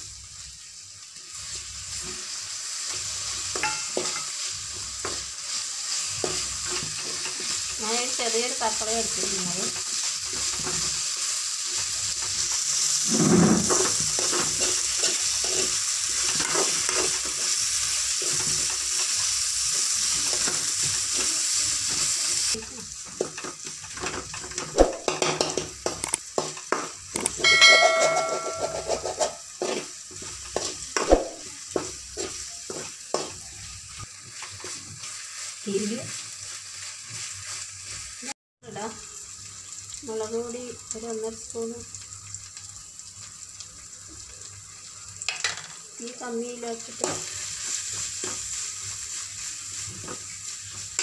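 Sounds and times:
vegetables sizzling in oil: 0.0s - 51.0s
spoon stirring and scraping pan: 1.3s - 38.3s, 46.8s - 51.0s
spoon knocking against pan: 24.8s - 29.4s
brief metallic ring: 27.5s - 29.0s.

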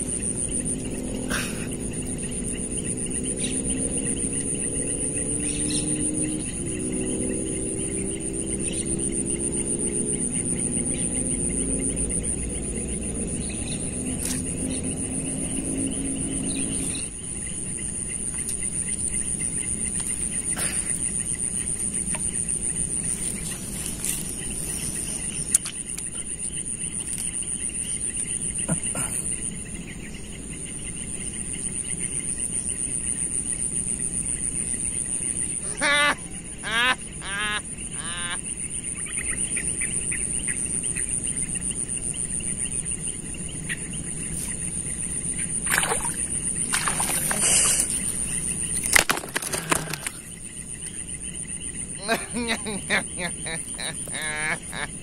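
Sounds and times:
low motor drone: 0.0s - 20.8s
insects chorus: 0.0s - 55.0s.

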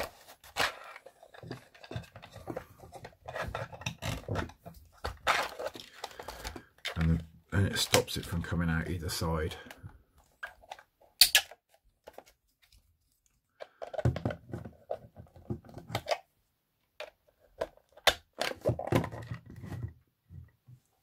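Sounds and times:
plastic parts rubbing and scraping: 0.0s - 16.3s, 17.0s - 20.0s
plastic clicks and knocks: 13.6s - 16.3s.

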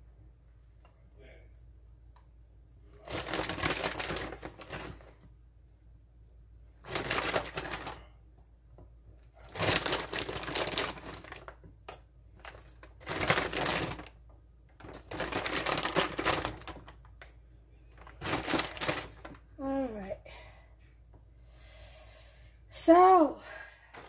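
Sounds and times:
plastic packaging crinkling: 3.0s - 5.2s, 6.8s - 8.0s, 9.4s - 11.6s, 12.4s - 19.5s.

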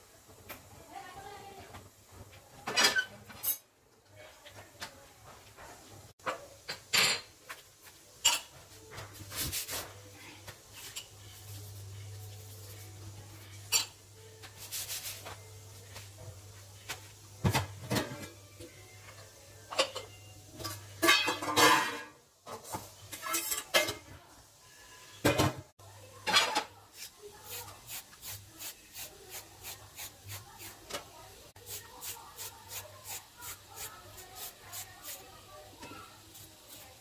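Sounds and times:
steel kitchenware clinking: 8.2s - 8.6s, 13.6s - 14.0s, 19.7s - 24.1s
vegetable peeler scraping carrot: 27.0s - 30.9s, 31.6s - 35.3s.

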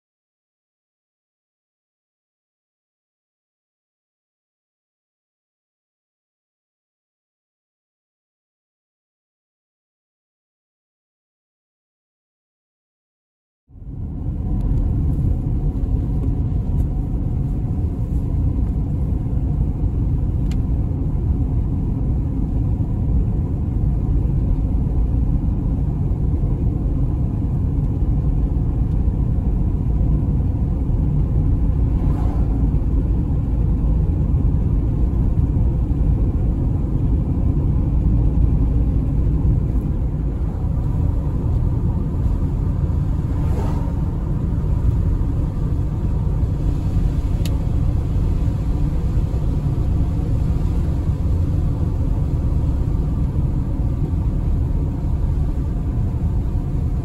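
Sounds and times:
car tyres and engine rumble: 13.7s - 57.0s.

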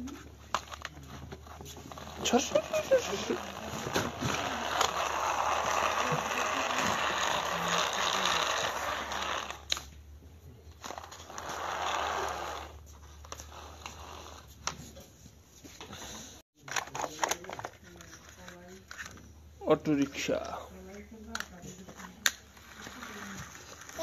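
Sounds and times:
toy car motor whirring: 0.5s - 9.9s, 10.7s - 14.7s.

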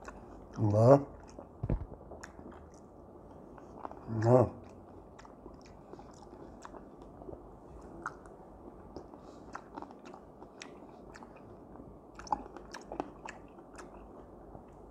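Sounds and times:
man chewing and eating: 0.0s - 14.9s.

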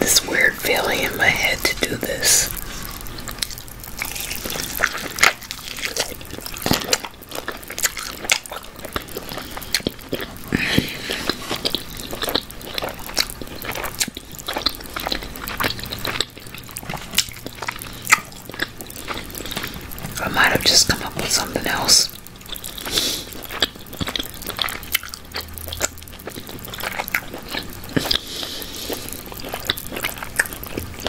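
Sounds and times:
person chewing and lip smacking: 0.0s - 31.0s.

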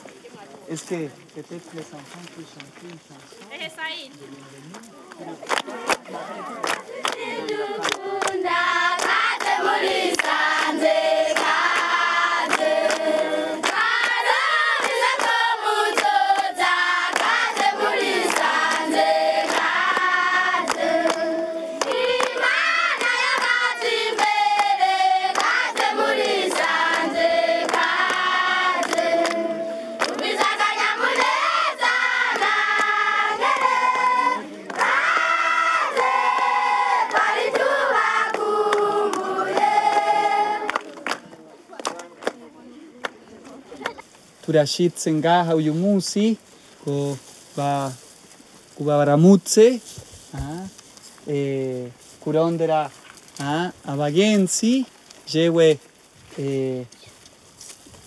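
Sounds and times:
handclaps: 4.7s - 31.6s, 32.3s - 34.0s, 34.6s - 42.4s
children singing together: 7.0s - 40.7s.

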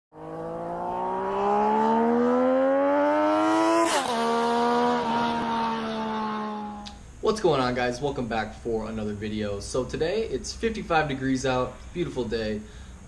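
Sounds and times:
motorcycle engine accelerating: 0.1s - 6.9s.

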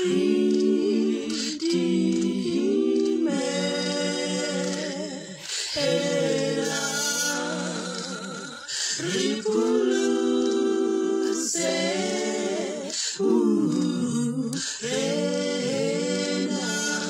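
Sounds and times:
a cappella vocal harmony: 0.0s - 17.0s.

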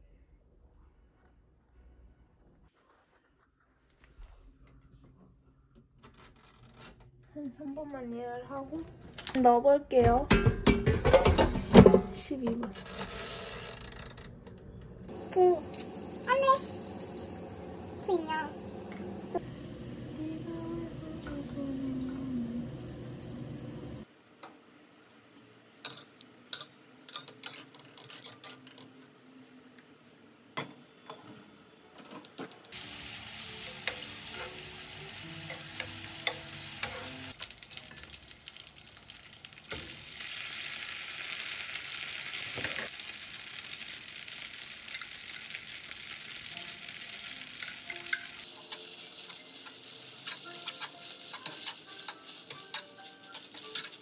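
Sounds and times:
frying pan sizzling: 15.1s - 24.1s, 32.7s - 54.0s
metal tongs clinking on pot: 25.8s - 28.9s, 47.6s - 54.0s.

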